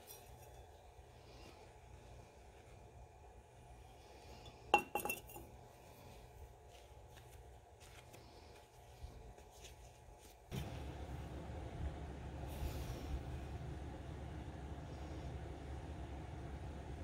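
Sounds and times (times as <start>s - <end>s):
faint low hum: 0.0s - 17.0s
glass bottle and knife clinking: 4.8s - 5.5s.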